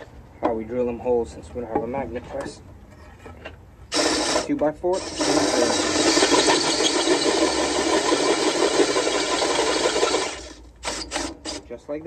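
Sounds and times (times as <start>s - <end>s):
cordless drill boring through steel: 3.9s - 11.7s.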